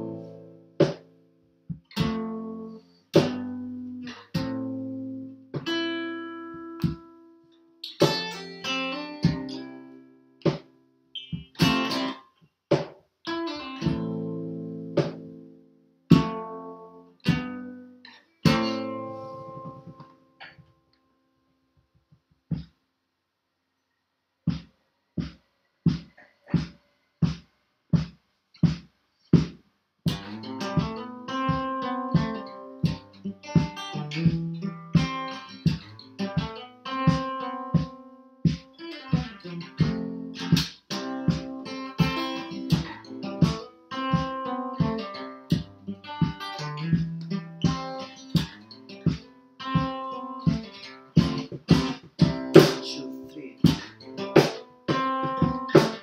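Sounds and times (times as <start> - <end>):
acoustic guitar playing: 0.0 - 20.7, 30.1 - 56.0.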